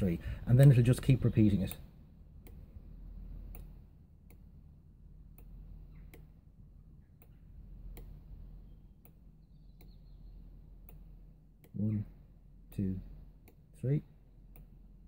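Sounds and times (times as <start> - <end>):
steady low hum: 0.0 - 15.0
faint sharp ticks: 3.5 - 4.5, 14.5 - 14.8.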